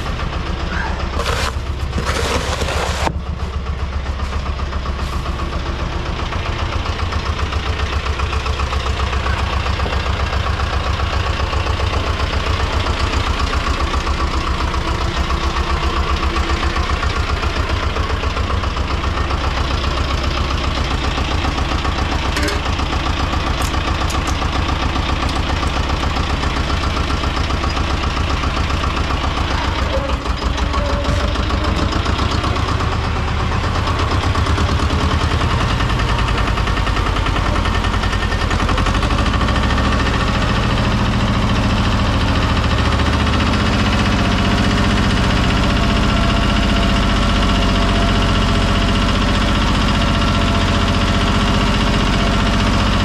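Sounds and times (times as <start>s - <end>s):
tractor engine running: 0.0s - 53.0s.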